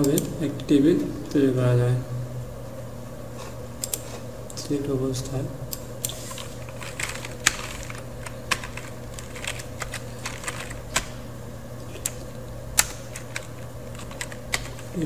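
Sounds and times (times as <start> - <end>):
keyboard keystrokes: 6.8 - 11.2, 12.8 - 14.9.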